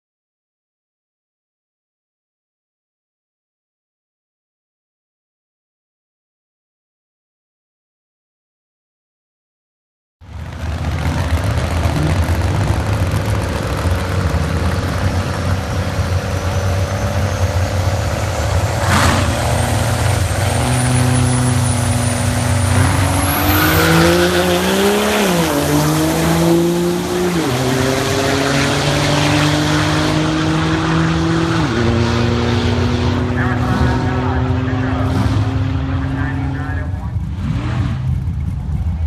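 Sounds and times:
diesel truck engine accelerating: 0:10.2 - 0:39.0.

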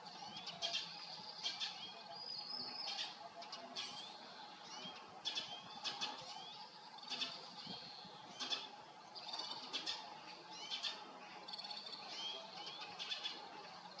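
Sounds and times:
small birds chirping: 0:00.0 - 0:14.0.

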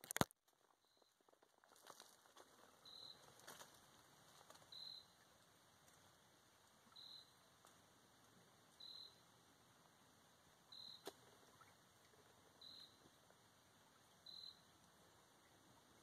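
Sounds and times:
insect chirps: 0:00.8 - 0:01.2, 0:02.7 - 0:03.7, 0:04.5 - 0:05.3, 0:06.9 - 0:07.5, 0:08.8 - 0:09.3, 0:10.7 - 0:11.6, 0:12.6 - 0:13.0, 0:14.2 - 0:14.8.

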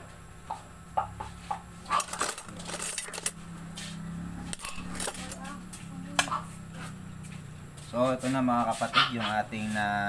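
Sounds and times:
low steady hum: 0:00.0 - 0:08.7.

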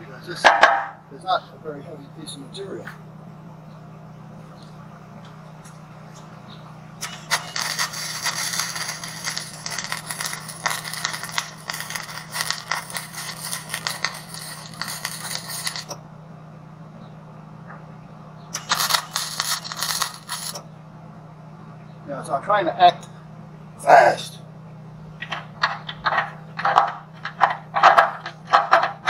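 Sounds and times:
arc welding crackling: 0:07.0 - 0:16.0, 0:18.5 - 0:20.7, 0:25.2 - 0:29.0.

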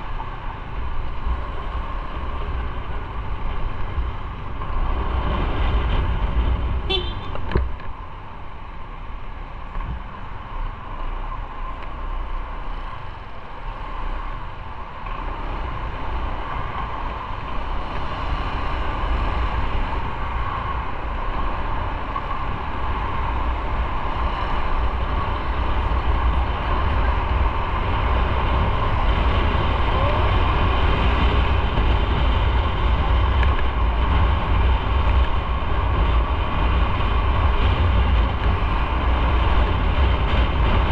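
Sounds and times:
wind noise on microphone: 0:00.0 - 0:08.3, 0:12.8 - 0:40.9
road rumble: 0:00.0 - 0:40.9.

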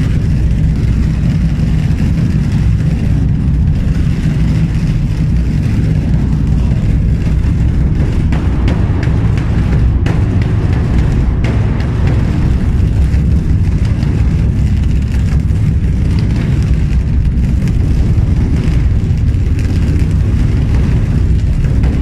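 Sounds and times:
background music with heavy bass: 0:00.0 - 0:22.0.

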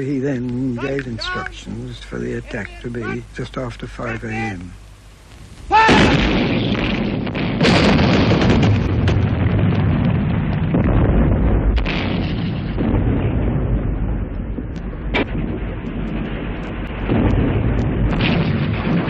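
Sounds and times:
continuous low rumble: 0:00.0 - 0:19.0
sharp blasts: 0:05.4 - 0:19.0
artillery guns firing: 0:05.8 - 0:19.0.

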